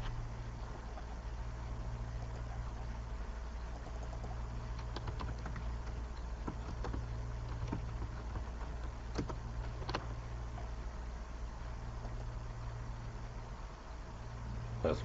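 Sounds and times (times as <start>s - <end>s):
low electrical hum: 0.0s - 15.0s
keyboard typing clicks: 3.8s - 10.1s.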